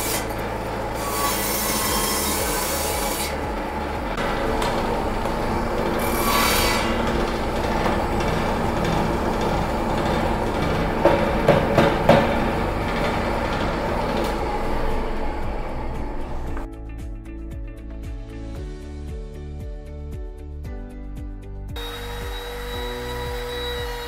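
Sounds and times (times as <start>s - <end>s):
saw blade cutting wood: 0.0s - 16.7s, 21.8s - 24.0s
table saw motor running: 0.0s - 16.7s, 21.8s - 24.0s
sharp knocks: 1.9s - 15.2s.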